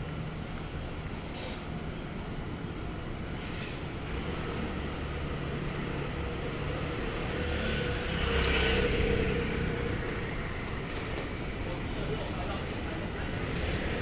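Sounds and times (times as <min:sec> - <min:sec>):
vehicle engine passing: 0:04.1 - 0:11.1.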